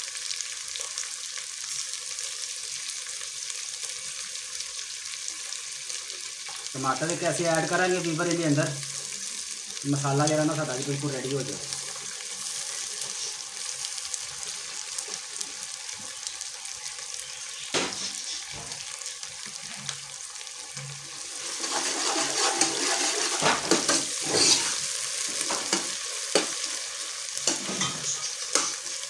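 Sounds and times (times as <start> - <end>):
onions sizzling in pot: 0.0 - 29.0
ladle scraping metal pot: 21.2 - 25.8.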